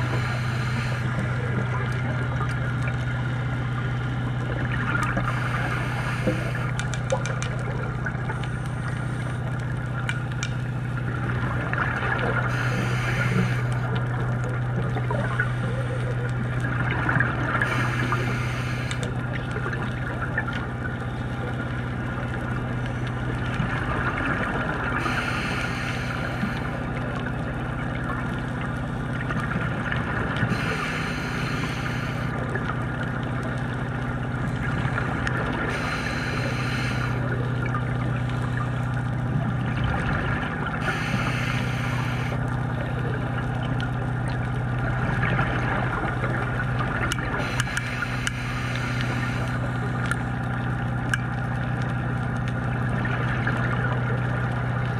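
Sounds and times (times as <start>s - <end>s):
diver regulator exhaling bubbles: 0.0s - 54.9s
steady low hum: 0.0s - 54.9s.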